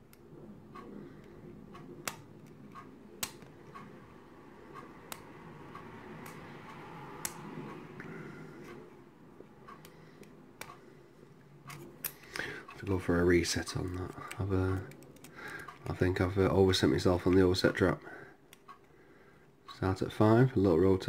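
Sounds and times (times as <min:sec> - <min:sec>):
lock pick ticks and scrapes: 0:13.8 - 0:15.9.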